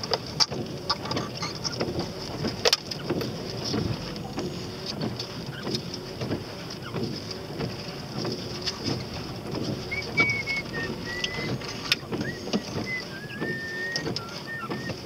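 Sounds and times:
car engine and wet tyre noise: 0.0s - 15.0s
raindrops ticking on windscreen: 0.0s - 15.0s.

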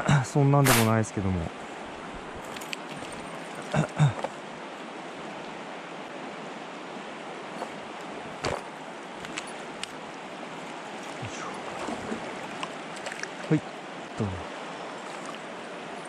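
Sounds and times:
shallow river flowing: 0.2s - 16.0s.

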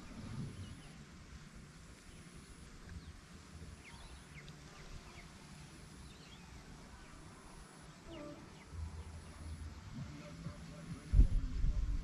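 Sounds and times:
bird chirps: 2.0s - 11.2s.

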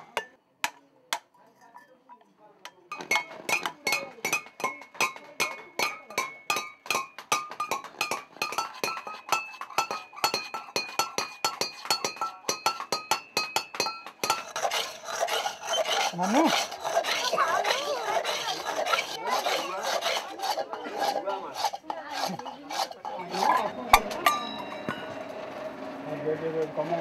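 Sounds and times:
hammer striking brass bowl: 2.9s - 14.5s, 23.0s - 25.4s
metal scraping: 2.9s - 26.0s.

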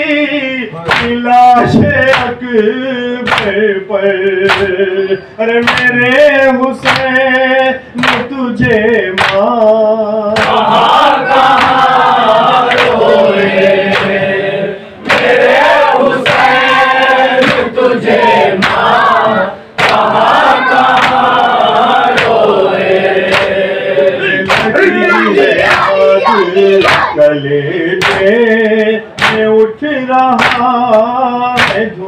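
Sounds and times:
men chanting a lament in chorus: 0.0s - 32.0s.

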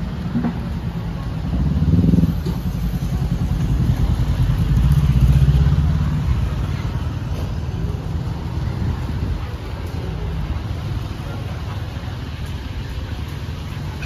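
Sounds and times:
vehicle engine passing by: 1.4s - 9.2s.

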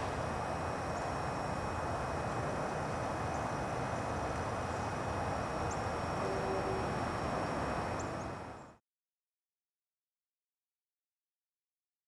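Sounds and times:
outdoor background rumble: 0.0s - 8.8s.

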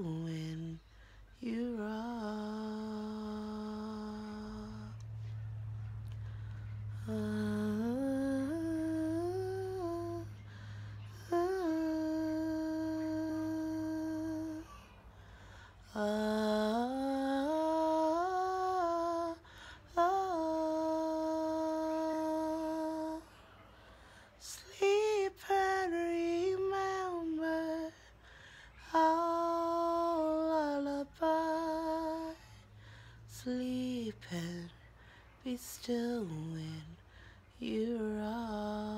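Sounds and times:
woman humming a lullaby: 1.4s - 5.0s, 6.8s - 15.1s, 15.9s - 23.3s.

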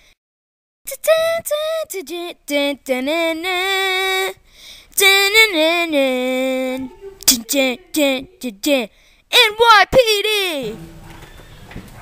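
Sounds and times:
young female voice singing: 0.9s - 4.4s, 5.0s - 10.7s
breath: 4.4s - 5.0s, 8.9s - 9.3s.

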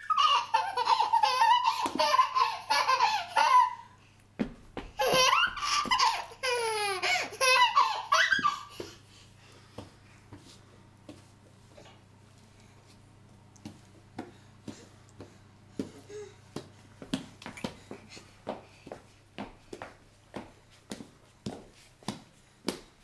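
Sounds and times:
baby laughing: 0.0s - 4.0s, 5.0s - 9.0s.

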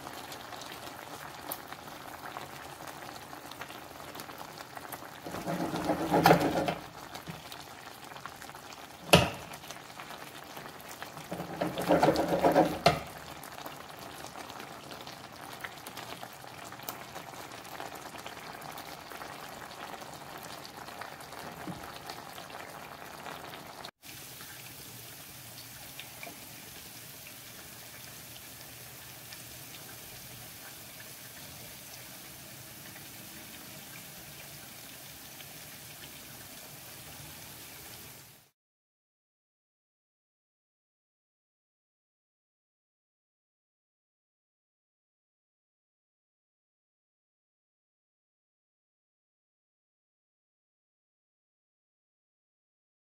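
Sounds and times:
sauce bubbling in a pan: 0.0s - 38.6s
spatula scraping a pan: 5.2s - 6.9s, 11.2s - 13.2s.

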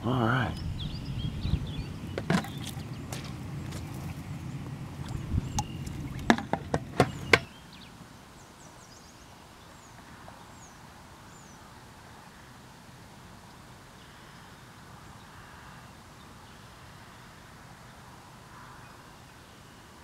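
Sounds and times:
handling rumble: 0.8s - 7.5s.

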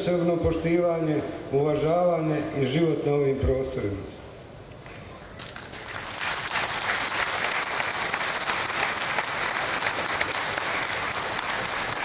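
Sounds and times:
audience applauding: 5.4s - 12.0s.

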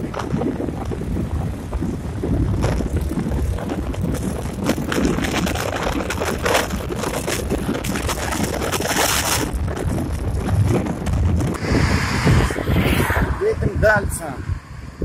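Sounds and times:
wind buffeting microphone: 0.0s - 15.0s
road rumble: 9.4s - 15.0s.

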